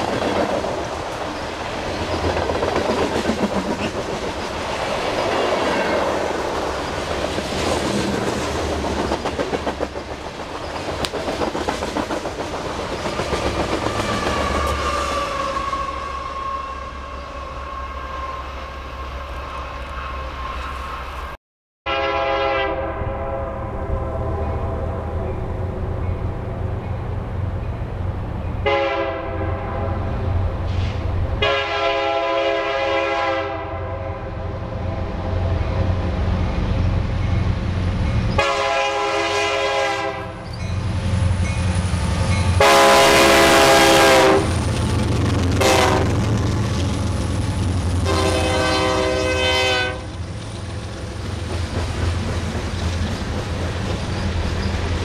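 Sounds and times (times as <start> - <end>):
locomotive air horn blasts: 21.9 - 24.8, 28.6 - 30.1, 31.4 - 34.4, 38.4 - 40.4, 42.6 - 44.5, 45.6 - 46.2, 48.0 - 50.1.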